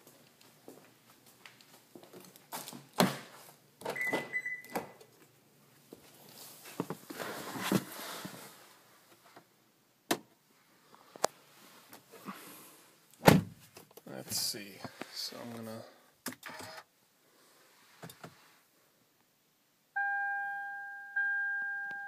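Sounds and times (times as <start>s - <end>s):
high beep: 4.0s - 4.8s, 20.0s - 22.0s
rustling: 5.2s - 9.4s.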